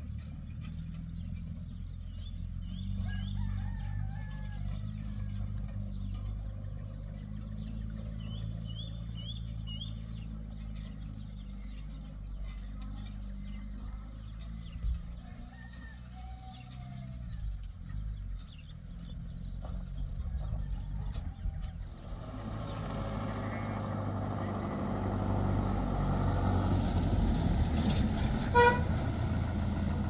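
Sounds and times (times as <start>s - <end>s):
pickup truck engine running: 17.4s - 30.0s
horn toot: 28.4s - 29.1s.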